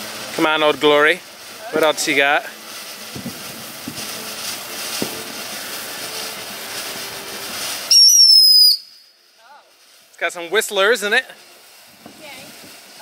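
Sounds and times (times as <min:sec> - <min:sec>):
fountain firework hissing crackle: 0:00.0 - 0:13.0
firework whistle: 0:01.5 - 0:09.9.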